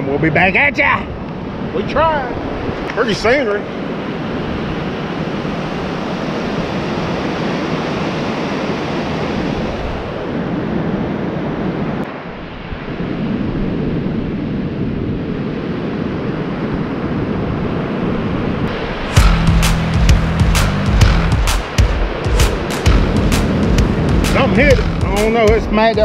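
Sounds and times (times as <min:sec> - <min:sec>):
ocean surf breaking on beach: 0:00.8 - 0:19.2.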